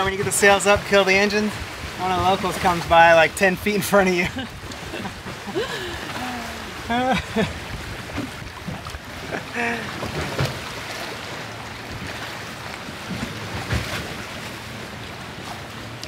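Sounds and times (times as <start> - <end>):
water rushing past hulls: 0.0 - 16.0
wind: 0.0 - 16.0.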